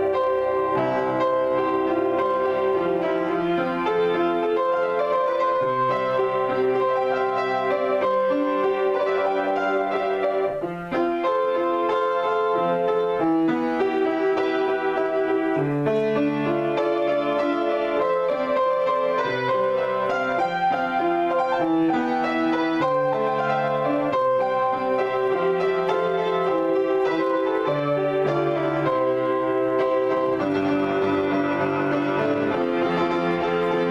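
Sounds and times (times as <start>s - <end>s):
solo piano: 0.0s - 33.9s.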